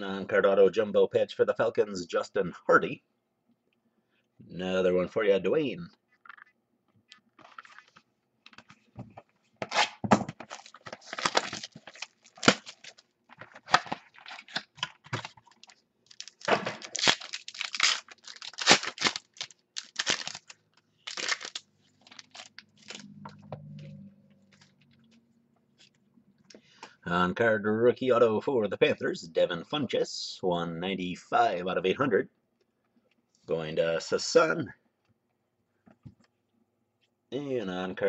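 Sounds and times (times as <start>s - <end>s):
wrapper tearing and crinkling: 9.7s - 23.1s.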